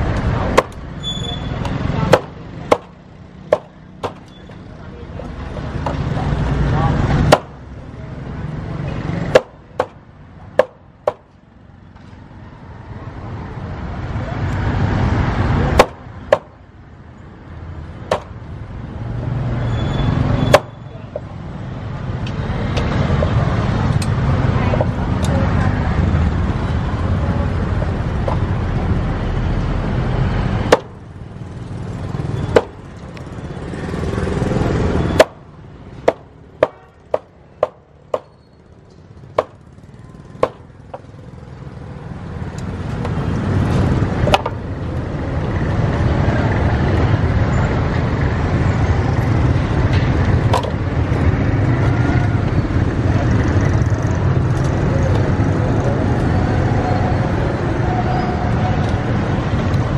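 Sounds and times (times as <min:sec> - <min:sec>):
street traffic: 0:00.0 - 0:59.9
cleaver chopping on wooden board: 0:02.1 - 0:04.2, 0:07.2 - 0:07.6, 0:09.2 - 0:11.3, 0:15.7 - 0:16.6, 0:18.1 - 0:18.4, 0:30.7 - 0:31.0, 0:32.5 - 0:32.8, 0:35.2 - 0:35.4, 0:36.0 - 0:38.4, 0:39.4 - 0:39.6, 0:40.4 - 0:41.1.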